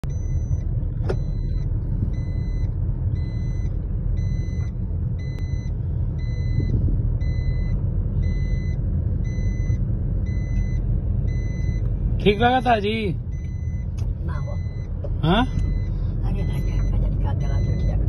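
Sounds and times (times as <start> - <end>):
car road and engine rumble: 0.0 - 18.0
car warning chime beeping: 0.0 - 18.0.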